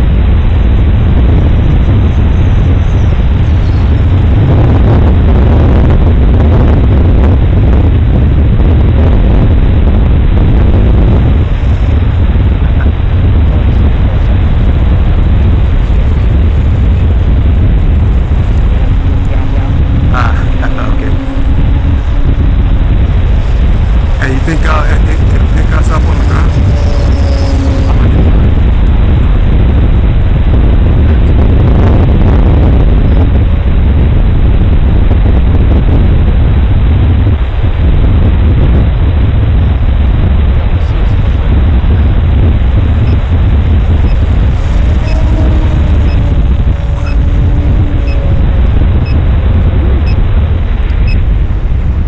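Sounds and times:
wind buffeting microphone: 0.0s - 52.0s
model plane engine and propeller: 10.6s - 30.9s.

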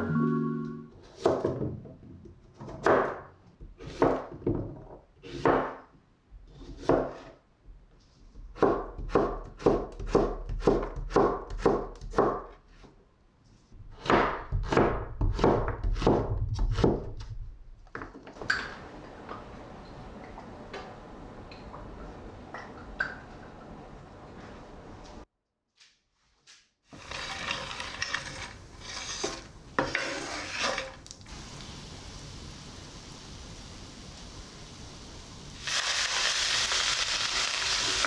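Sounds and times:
knife chopping vegetable: 8.5s - 12.9s, 13.9s - 17.2s.

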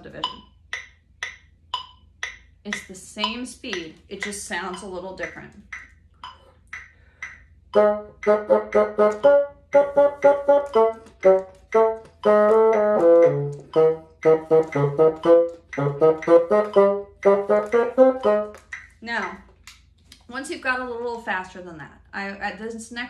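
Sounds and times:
metronome ticking: 0.0s - 19.6s
bassoon playing short notes: 7.8s - 18.8s.

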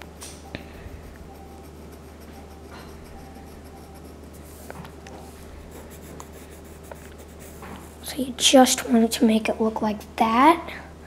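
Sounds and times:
pencil scratching on paper: 0.9s - 8.2s.

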